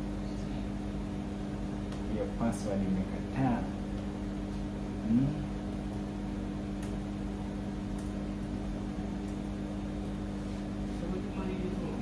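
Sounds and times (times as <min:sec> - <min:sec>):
steady mechanical hum: 0:00.0 - 0:12.0
man murmuring: 0:05.0 - 0:05.5.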